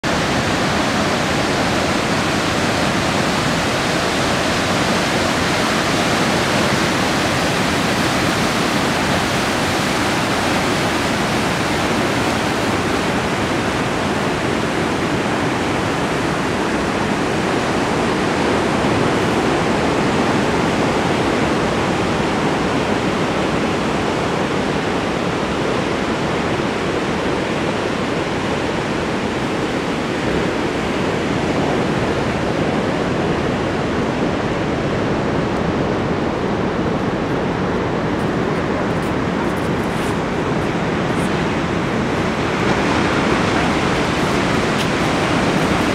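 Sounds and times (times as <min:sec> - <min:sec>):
water surging: 0:00.0 - 0:45.9
surf breaking: 0:37.1 - 0:45.9.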